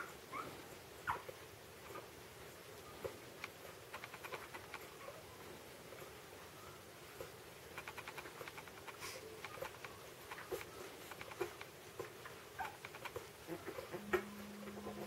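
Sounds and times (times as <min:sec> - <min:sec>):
small squeaks: 0:02.9 - 0:05.2, 0:06.6 - 0:14.0.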